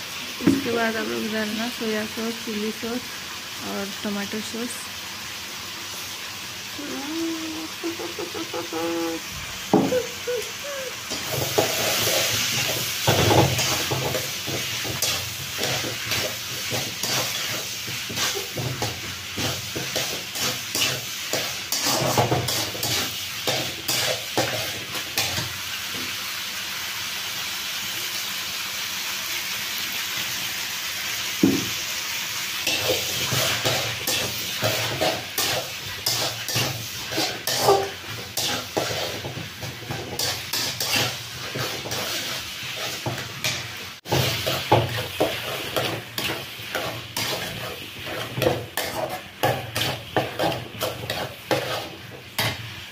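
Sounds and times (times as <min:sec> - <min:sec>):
vegetables sizzling in pan: 0:00.0 - 0:52.9
metal spatula scraping pan: 0:11.1 - 0:25.4, 0:32.6 - 0:52.7.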